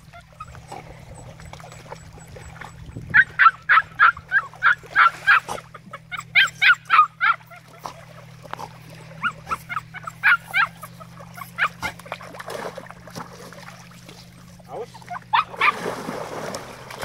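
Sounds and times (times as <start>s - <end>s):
puppy whining and yipping: 0.0s - 8.0s, 9.2s - 12.0s, 14.7s - 15.8s.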